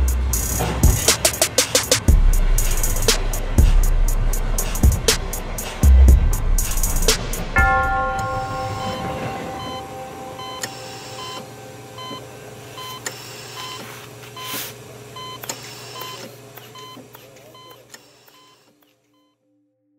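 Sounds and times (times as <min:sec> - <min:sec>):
heart monitor beeping: 0:07.6 - 0:14.6, 0:15.2 - 0:19.4.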